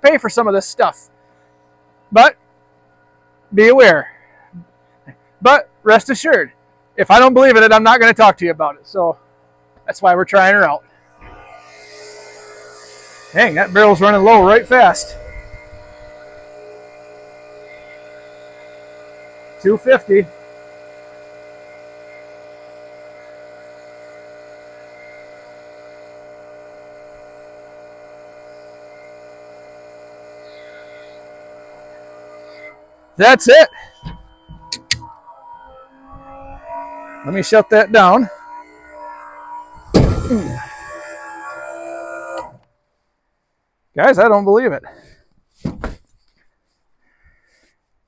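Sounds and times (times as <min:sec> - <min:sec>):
electric pump motor humming: 0:00.0 - 0:42.8.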